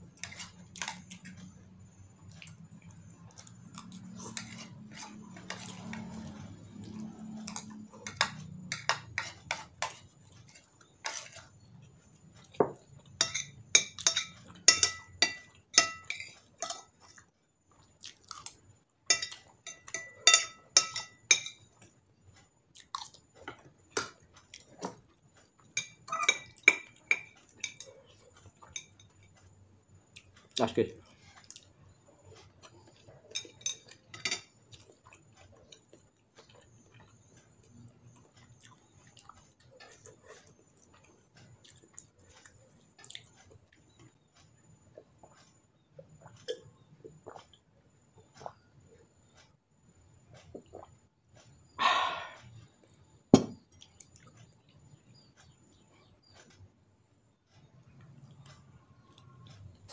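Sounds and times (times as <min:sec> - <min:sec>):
chewing: 0:00.2 - 0:13.2, 0:16.3 - 0:18.7, 0:21.7 - 0:49.1, 0:53.7 - 0:56.7
spoon clinking on glass bowl: 0:12.6 - 0:16.9, 0:19.1 - 0:21.6.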